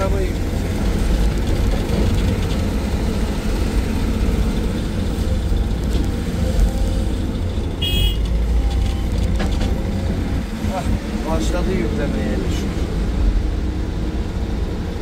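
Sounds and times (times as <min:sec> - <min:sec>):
excavator diesel engine running: 0:00.0 - 0:15.0.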